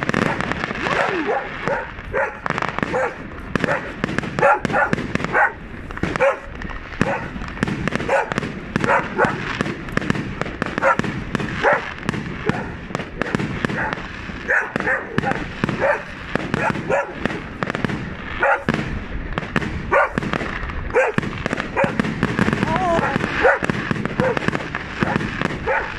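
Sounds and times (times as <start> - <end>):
fireworks bangs and crackles: 0.0 - 25.9
dog barking: 0.1 - 7.4, 8.0 - 9.6, 10.8 - 17.3, 18.4 - 18.8, 19.9 - 20.2, 20.9 - 22.0, 23.0 - 25.9.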